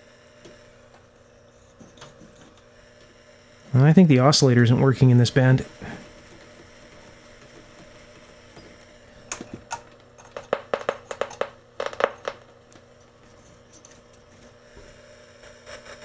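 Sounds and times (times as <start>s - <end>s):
faint steady hum: 0.0s - 16.0s
radio receiver crackles and pops: 9.3s - 12.8s.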